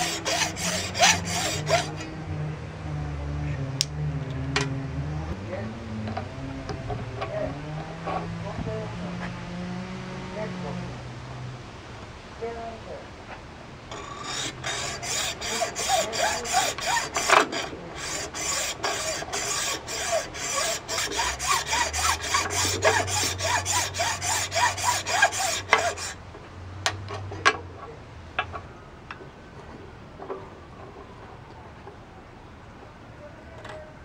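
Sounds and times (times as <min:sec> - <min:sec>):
hacksaw cutting stone: 0:00.0 - 0:02.1, 0:13.9 - 0:26.2.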